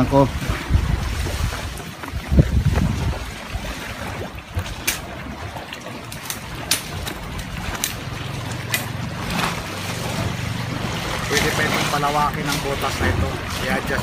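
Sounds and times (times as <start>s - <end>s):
sea water lapping among rocks: 0.0s - 14.0s
wind rumbling on microphone: 0.0s - 14.0s.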